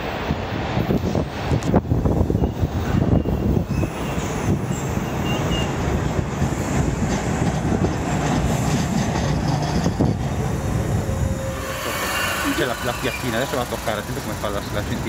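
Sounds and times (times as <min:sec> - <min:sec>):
subway train wheels rumbling: 0:00.0 - 0:15.0
high wheel squeals: 0:10.0 - 0:15.0.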